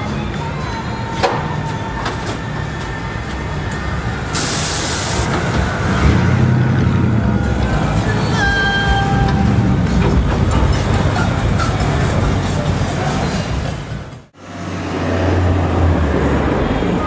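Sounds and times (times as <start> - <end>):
street traffic engines: 0.0 - 17.0
air hiss burst: 4.3 - 5.3.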